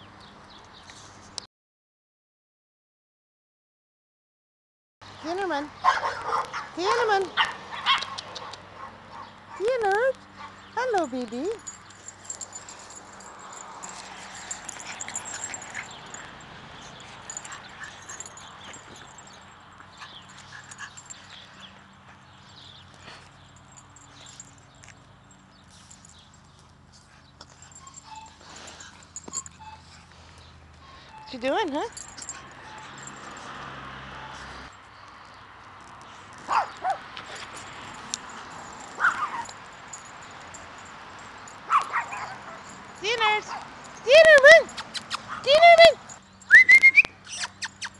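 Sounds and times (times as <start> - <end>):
puppies yipping: 11.6 - 22.3, 25.8 - 34.7, 36.5 - 42.9, 43.5 - 47.9
puppies whimpering and yipping: 27.5 - 33.4, 47.2 - 47.9.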